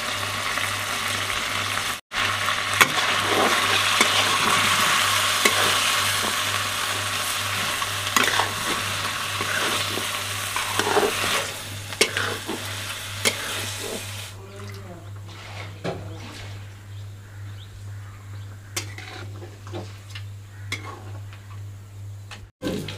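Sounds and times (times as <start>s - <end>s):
paste sizzling in a pan: 0.0s - 14.4s
metal spatula scraping a pan: 2.8s - 14.2s, 15.2s - 16.8s, 18.7s - 20.1s, 20.7s - 21.3s.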